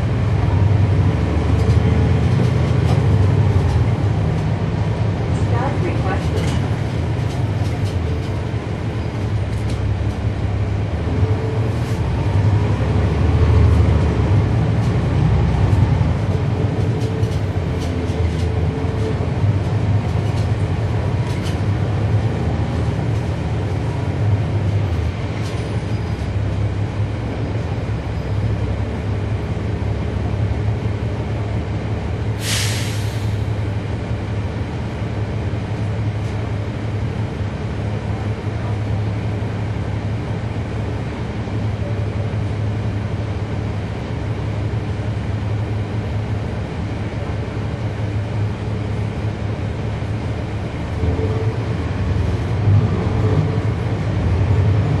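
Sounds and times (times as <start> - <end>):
bus diesel engine running: 0.0 - 55.0
air brake hiss: 32.4 - 33.5.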